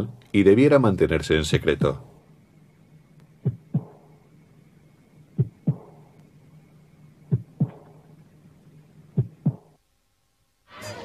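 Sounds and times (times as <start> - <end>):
low steady hum: 0.0 - 11.0
heartbeat thumps: 3.4 - 4.2, 5.3 - 6.2, 7.3 - 8.1, 9.1 - 9.8.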